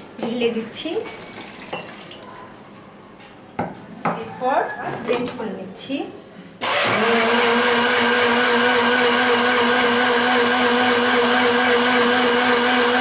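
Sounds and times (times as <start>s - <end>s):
blender running: 6.6s - 13.0s.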